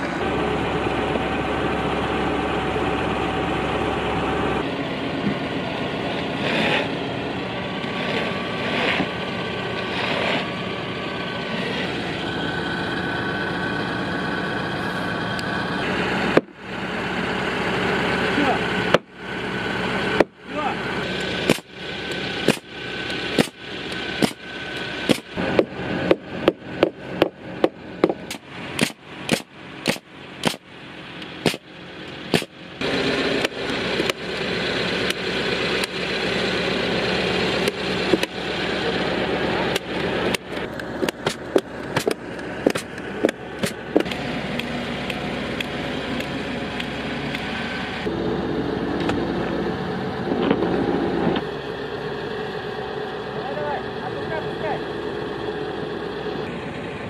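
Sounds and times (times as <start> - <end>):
truck engine running: 0.0 - 57.0
hammer striking timber: 18.9 - 19.1, 20.2 - 20.4, 21.4 - 21.7, 22.4 - 22.7, 23.4 - 23.6, 24.2 - 24.4, 25.1 - 30.6, 31.4 - 31.7, 32.3 - 32.5.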